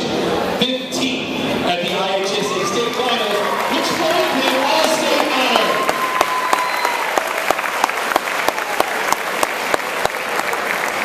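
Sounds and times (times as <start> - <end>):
audience applauding: 2.6 - 11.0
person clapping steadily: 4.4 - 11.0.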